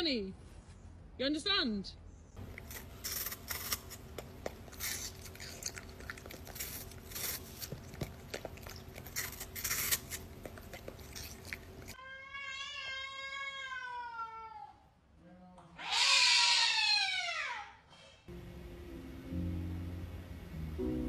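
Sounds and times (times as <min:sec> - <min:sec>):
dog crunching apple: 0:02.4 - 0:12.0
cat meowing: 0:12.0 - 0:14.8.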